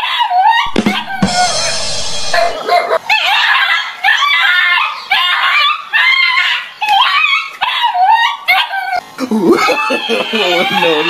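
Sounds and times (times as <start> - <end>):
harsh rasping noise: 0.7 - 2.8
dog barking: 2.4 - 8.8.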